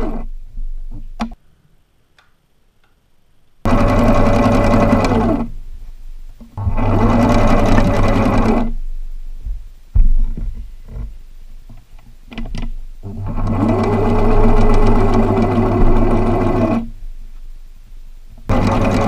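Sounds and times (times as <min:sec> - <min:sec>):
sewing machine stitching: 0:00.0 - 0:00.3, 0:03.7 - 0:05.6, 0:06.6 - 0:08.8, 0:13.0 - 0:16.9, 0:18.5 - 0:19.0.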